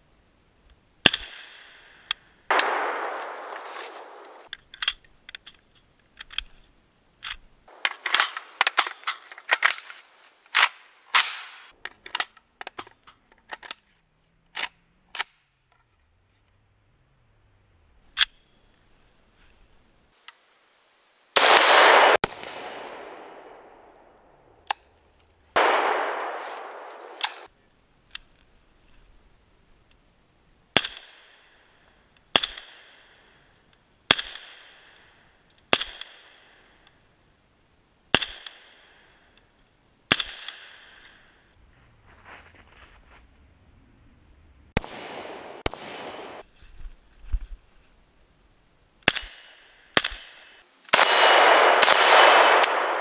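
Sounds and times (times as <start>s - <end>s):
rifle shots with ringing echo: 1.1s - 4.5s, 21.4s - 24.3s, 25.6s - 27.5s, 44.8s - 46.4s, 49.1s - 53.0s
loud gunshot blasts: 2.5s - 4.5s, 21.4s - 24.0s, 25.6s - 27.5s, 44.8s - 46.4s, 51.0s - 53.0s.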